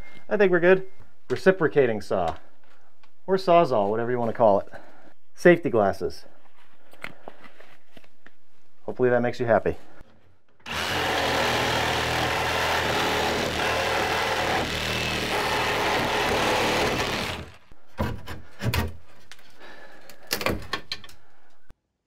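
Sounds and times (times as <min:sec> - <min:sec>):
reciprocating saw cutting wood: 0:10.7 - 0:17.7.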